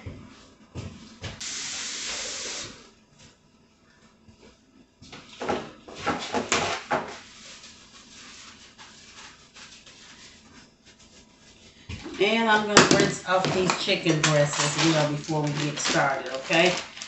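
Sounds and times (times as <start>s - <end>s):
kitchen faucet running: 1.4s - 2.8s
paper towels rustling: 6.7s - 17.0s.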